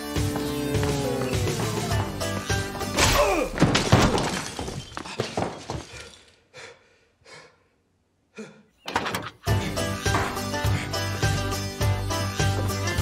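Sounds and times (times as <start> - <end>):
man falling on stairs: 0.2 - 6.2
crash of breaking: 3.0 - 5.8.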